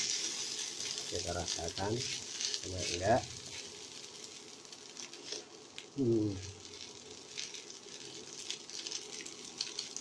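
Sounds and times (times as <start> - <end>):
fried rice sizzling in a wok: 0.0 - 10.0.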